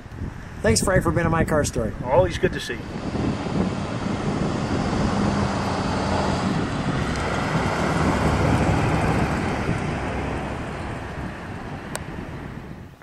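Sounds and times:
car engine driving past: 2.8 - 12.7.

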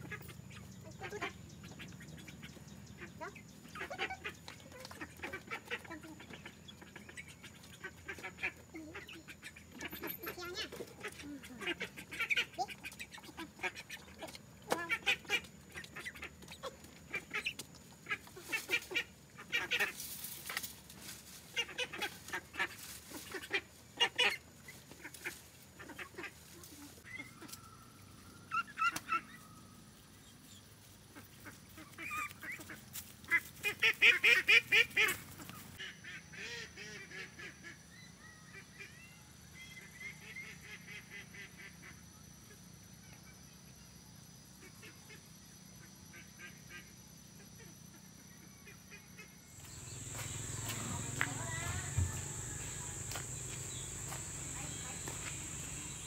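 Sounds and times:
ducks quacking: 0.0 - 20.0, 21.5 - 26.4, 48.9 - 56.0
outdoor background: 0.0 - 56.0.

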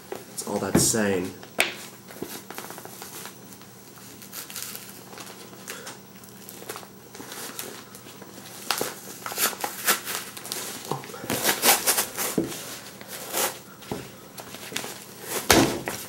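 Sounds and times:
paper pages tearing: 8.5 - 12.3.

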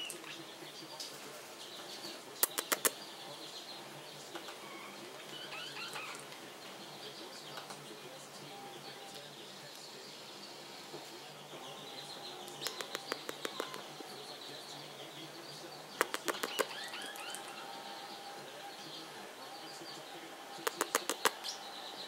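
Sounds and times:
parrotlets chattering: 1.7 - 7.8, 10.4 - 22.0
sharp clicks: 2.4 - 3.0, 12.5 - 13.9, 16.0 - 17.4, 20.6 - 21.5.

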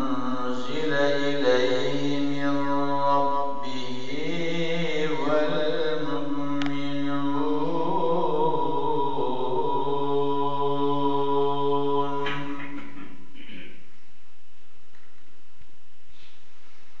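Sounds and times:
man reciting melismatic chant: 0.0 - 13.4.

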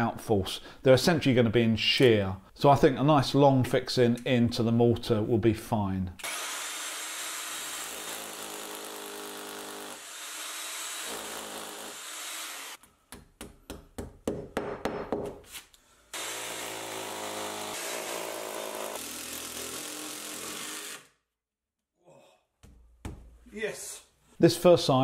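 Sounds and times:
hammer drill boring into wall: 6.2 - 12.8, 16.2 - 21.1.

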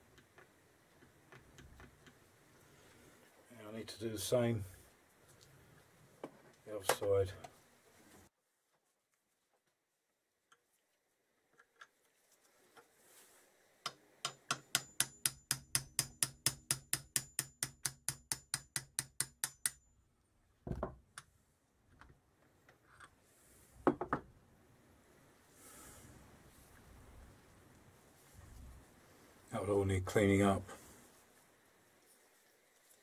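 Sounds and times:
hammer tapping metal drift: 14.2 - 19.8.

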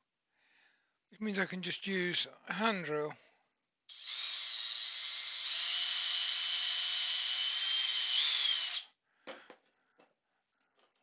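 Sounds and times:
cordless drill boring into wood: 3.9 - 8.9.

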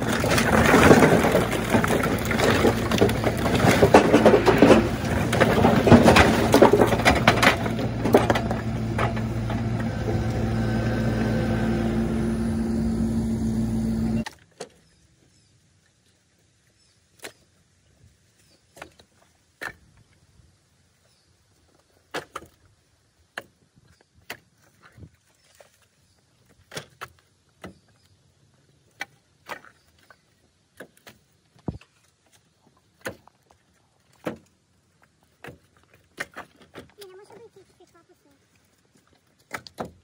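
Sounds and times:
firewood pieces knocking together: 0.0 - 10.4.

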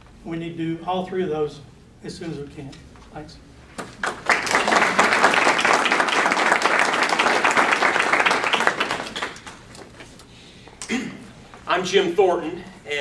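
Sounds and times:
audience applauding: 4.0 - 9.7.

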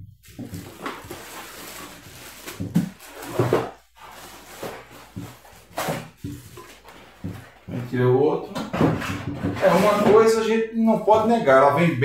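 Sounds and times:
plastic wrapping rustling: 0.2 - 7.8
pulp tray scraping against box: 8.7 - 10.4.

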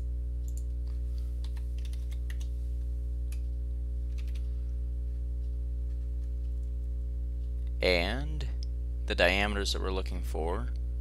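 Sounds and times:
low electrical hum: 0.0 - 11.0
keyboard and mouse clicks: 1.4 - 2.5, 4.1 - 4.4.

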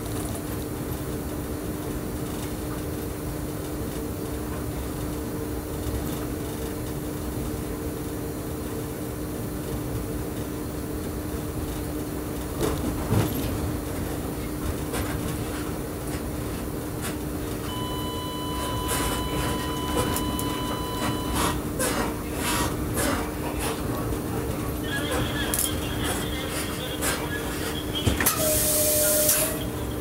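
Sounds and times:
train cab drone: 0.0 - 30.0
wheels clacking on rails: 12.3 - 17.6
high electronic beep: 17.7 - 21.6.

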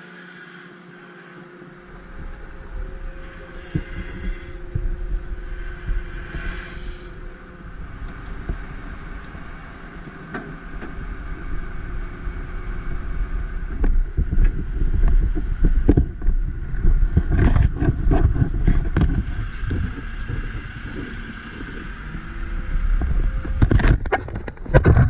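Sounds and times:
fire engine rumbling: 1.7 - 25.0
thumps and buffeting on microphone: 1.9 - 25.0.

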